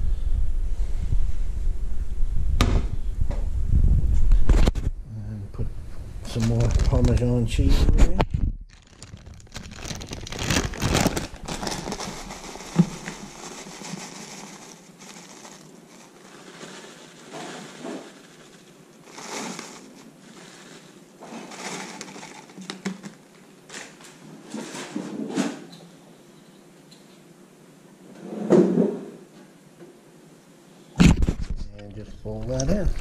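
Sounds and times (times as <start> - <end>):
kitchen handling and rustling: 6.2 - 25.7.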